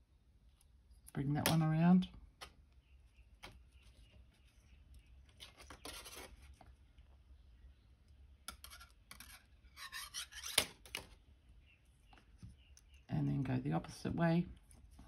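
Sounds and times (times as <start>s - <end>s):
wire scratchy rubbing: 8.6s - 10.9s.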